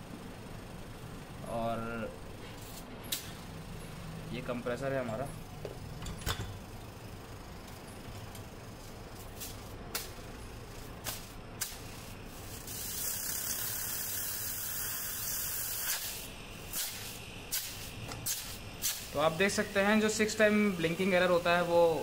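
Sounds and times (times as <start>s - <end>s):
refrigerator compressor humming: 0.0s - 22.0s.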